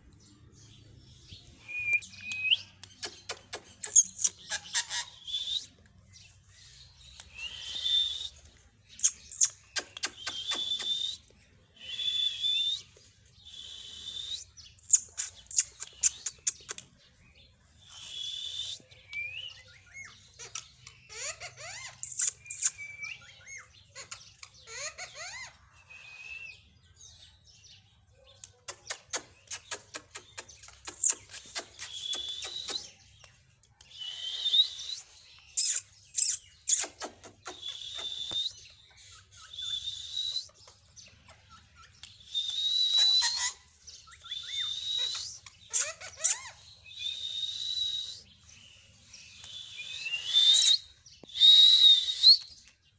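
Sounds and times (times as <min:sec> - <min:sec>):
parakeet screeching: 0:04.4 - 0:05.2, 0:20.4 - 0:22.2, 0:24.0 - 0:25.6, 0:45.0 - 0:46.6
gliding whistle-like calls: 0:05.1 - 0:05.8, 0:07.2 - 0:08.5, 0:09.3 - 0:16.2, 0:17.8 - 0:19.6, 0:31.0 - 0:33.0, 0:33.9 - 0:36.9, 0:37.5 - 0:40.6, 0:42.2 - 0:52.6.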